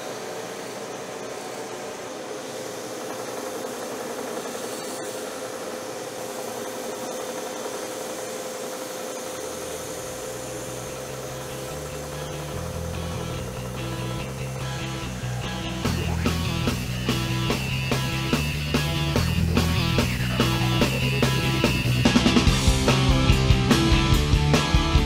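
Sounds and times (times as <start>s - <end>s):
belt sander humming: 0.0s - 25.0s
music: 11.0s - 25.0s.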